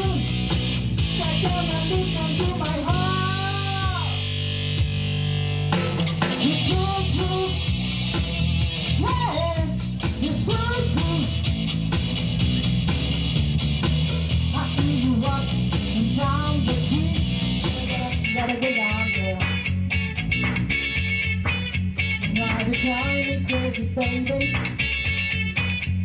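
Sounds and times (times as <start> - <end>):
drums with cymbal beat: 0.0 - 5.1, 5.7 - 26.0
bass and guitar: 0.0 - 26.0
woman singing: 1.2 - 4.2, 6.4 - 7.6, 9.0 - 11.3, 14.5 - 19.6, 22.3 - 24.7.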